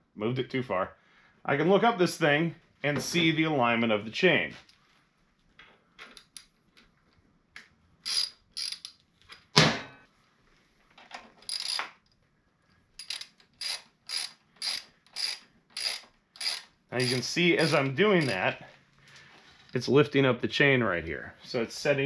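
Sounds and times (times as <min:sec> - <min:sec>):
socket ratchet clicking: 0:08.0 - 0:09.4, 0:11.4 - 0:12.0, 0:13.0 - 0:18.4.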